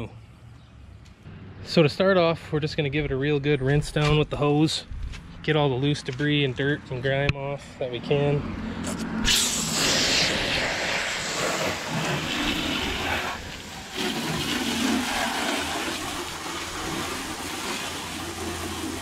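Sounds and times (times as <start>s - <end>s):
hose spraying water on boat hull: 9.3s - 19.0s.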